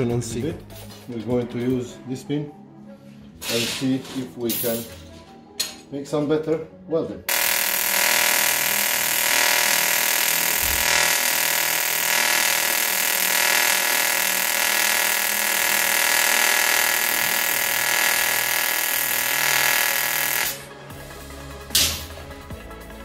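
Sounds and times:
welding arc buzzing: 7.3s - 20.9s.

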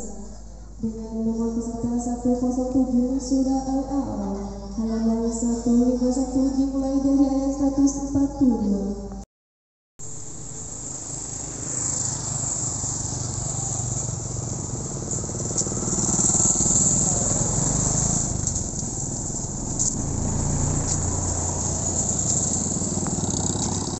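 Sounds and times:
motorbikes driving by: 10.0s - 23.9s
pickup truck driving by: 10.0s - 23.9s.

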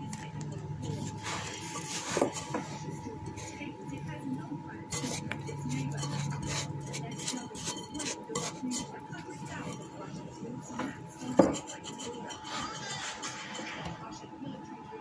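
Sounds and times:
gritty powder scraping: 0.8s - 3.6s, 4.9s - 10.1s.

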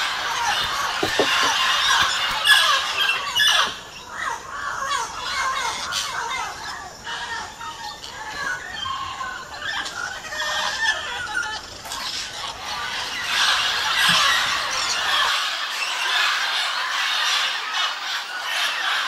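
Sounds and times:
parrots squawking: 0.0s - 3.7s.

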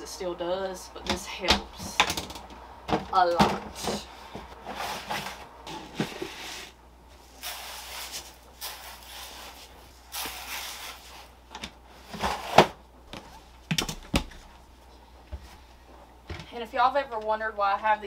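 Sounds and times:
plastic parts scraping and rustling: 3.4s - 6.8s.

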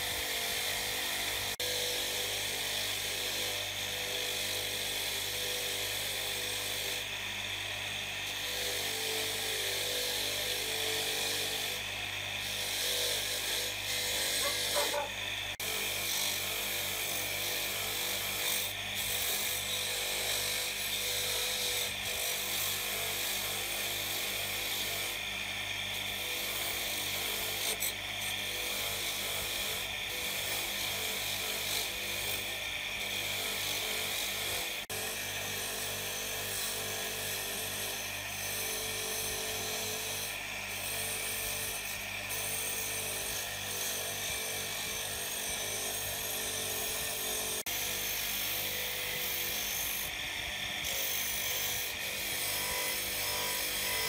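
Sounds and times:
electric motor hum: 0.0s - 23.4s
wire brush scrubbing metal: 12.4s - 15.6s.

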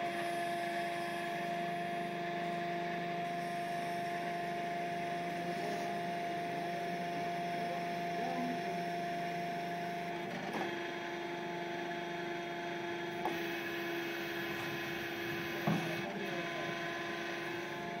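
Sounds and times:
hydraulic crane whining hum: 0.0s - 18.0s.

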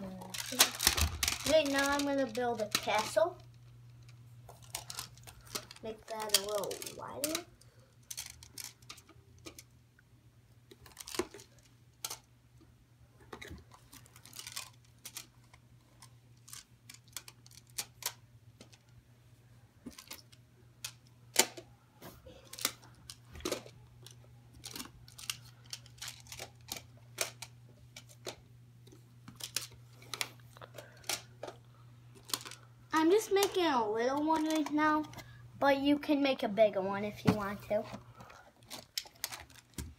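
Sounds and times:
plastic magnetic tiles clicking: 4.7s - 7.5s.

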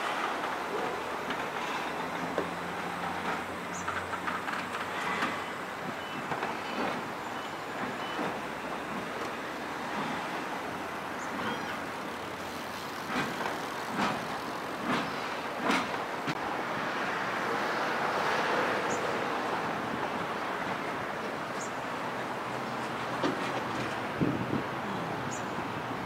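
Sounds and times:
steam locomotive rumble and hiss: 0.0s - 26.0s.

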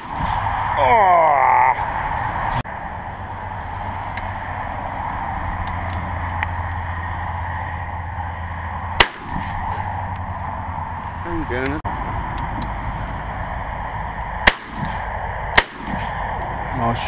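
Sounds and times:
shotgun shot: 0.0s - 0.4s, 9.0s - 9.6s, 14.4s - 15.0s, 15.6s - 16.2s
low rumble: 0.0s - 17.0s.

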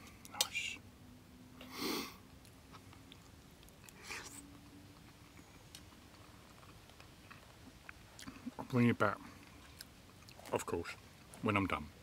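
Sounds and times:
faint steady hum: 0.0s - 12.0s
person chewing food: 2.3s - 8.6s, 9.4s - 10.5s.

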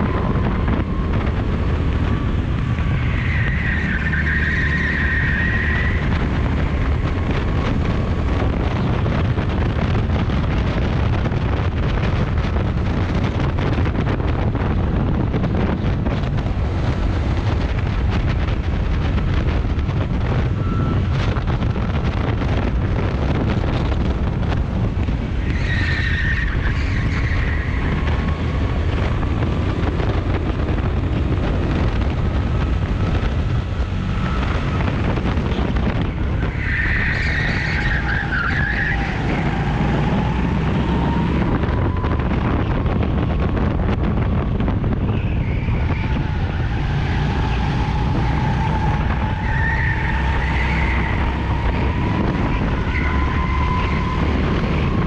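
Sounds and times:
wind noise on microphone: 0.0s - 55.0s
tyres squealing: 36.4s - 39.9s, 45.1s - 54.2s.

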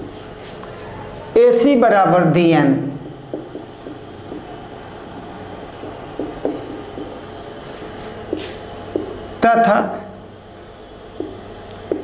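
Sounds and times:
marker writing on whiteboard: 0.0s - 0.6s, 2.9s - 9.3s, 11.1s - 12.0s
steady low hum: 0.0s - 12.0s.

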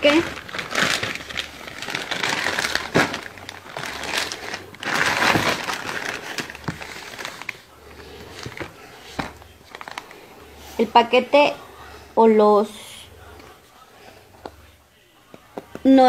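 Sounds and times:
paper rustling: 0.0s - 10.9s
plastic bags crinkling: 0.0s - 11.1s.

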